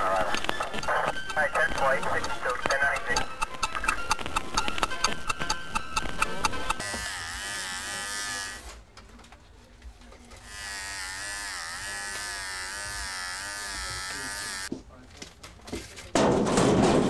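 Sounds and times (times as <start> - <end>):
rapid ticking: 0.0 - 6.8
wavering electric buzz: 0.0 - 8.7, 10.4 - 14.7.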